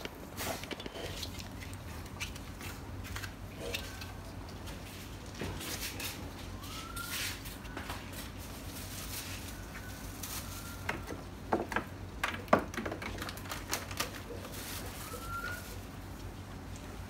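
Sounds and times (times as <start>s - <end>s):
plastic bag crackling: 6.6s - 11.1s, 13.1s - 16.1s.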